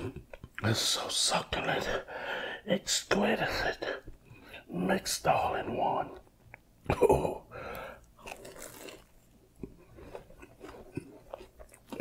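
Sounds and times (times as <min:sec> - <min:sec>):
man chewing crunchy food: 0:07.6 - 0:12.0.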